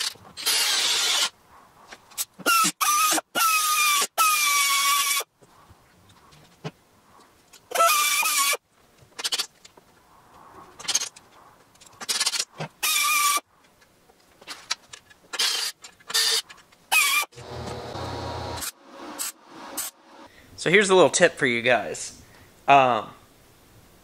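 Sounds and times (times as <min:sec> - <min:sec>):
air tool drilling metal: 0:00.0 - 0:01.3.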